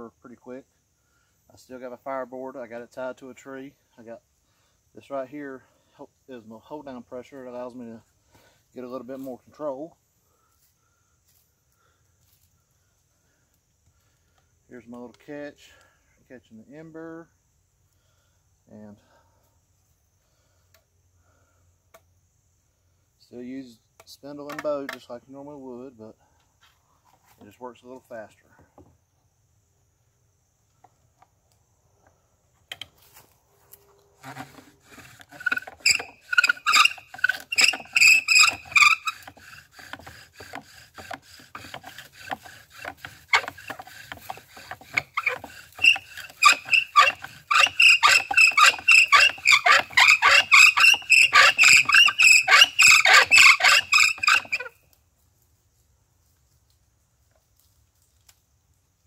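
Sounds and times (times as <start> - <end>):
bow drill squeaky rasping: 33.0 - 54.8.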